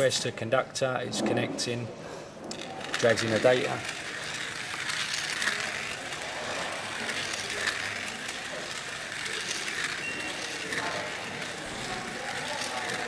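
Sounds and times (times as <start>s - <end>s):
slot car motor whirring: 2.6s - 13.0s.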